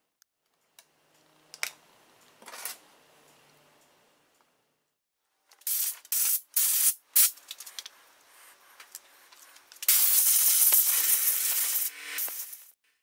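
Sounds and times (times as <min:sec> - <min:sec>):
compressed air blow gun hissing: 0:09.9 - 0:12.8.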